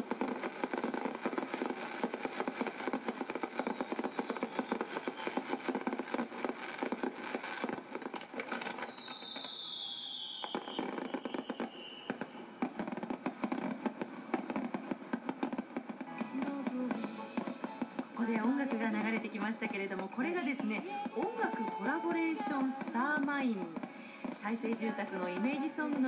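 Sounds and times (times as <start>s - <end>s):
falling firework whistle: 0.0s - 13.9s
fireworks crackling and popping: 0.0s - 26.0s.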